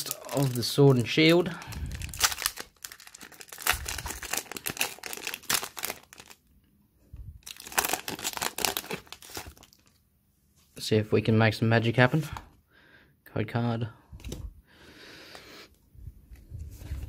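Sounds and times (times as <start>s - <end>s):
foil wrapper crinkling and tearing: 0.0s - 6.4s, 7.4s - 10.0s.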